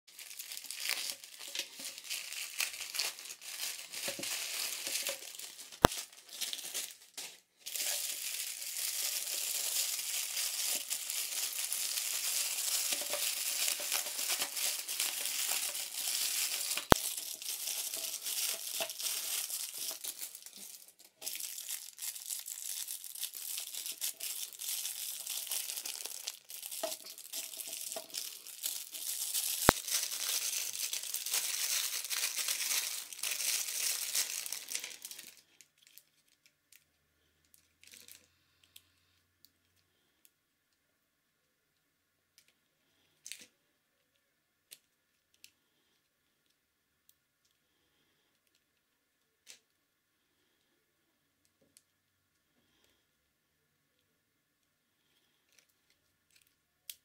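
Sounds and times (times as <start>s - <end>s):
plastic packaging crinkling: 0.1s - 36.8s, 37.5s - 38.3s.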